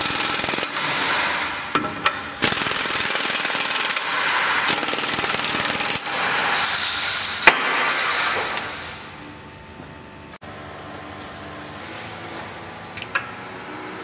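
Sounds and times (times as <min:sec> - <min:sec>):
impact tool hammering: 0:07.4 - 0:08.7.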